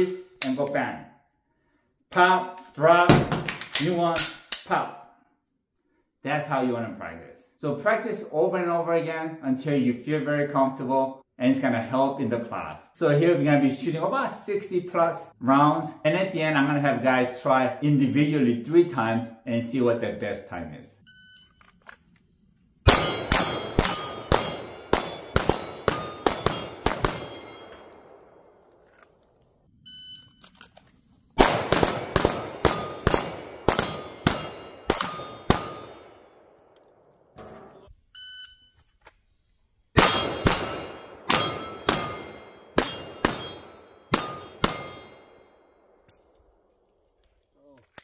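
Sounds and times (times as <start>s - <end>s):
metallic ring: 22.9s - 27.9s, 32.0s - 36.1s, 40.0s - 45.5s
pistol shots: 22.9s - 28.6s, 31.4s - 36.8s, 40.0s - 46.0s.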